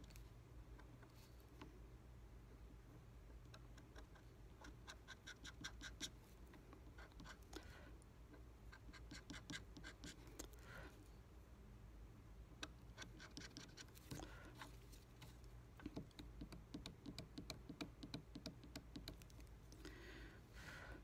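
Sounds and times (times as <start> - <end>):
pick scratching carving wax: 3.6 - 6.2, 8.7 - 10.6, 12.6 - 14.7.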